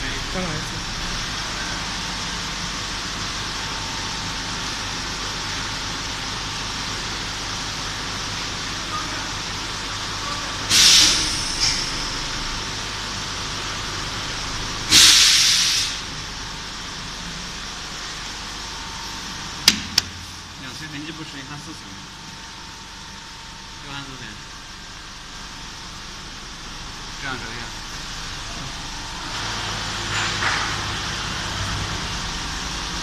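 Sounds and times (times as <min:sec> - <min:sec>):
compressed air blasts: 0:10.7 - 0:12.0, 0:14.9 - 0:16.1
steady hiss: 0:14.9 - 0:16.1
sharp click: 0:19.6 - 0:20.2.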